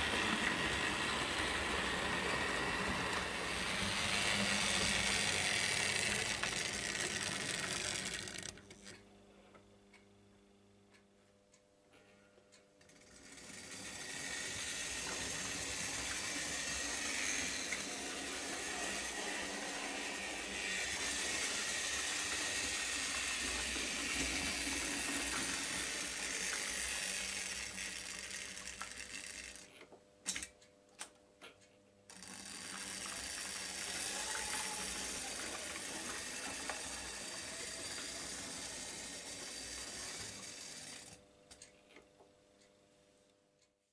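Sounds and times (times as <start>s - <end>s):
model train wheels rattling: 0.0s - 8.6s, 12.9s - 29.7s, 32.1s - 41.2s
small electric motor whirring: 0.0s - 9.0s, 12.9s - 29.7s, 32.1s - 41.2s.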